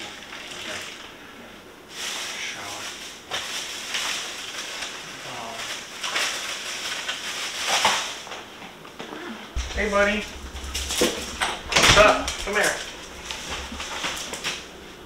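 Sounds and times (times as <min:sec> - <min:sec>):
shower water spraying: 0:09.6 - 0:15.0.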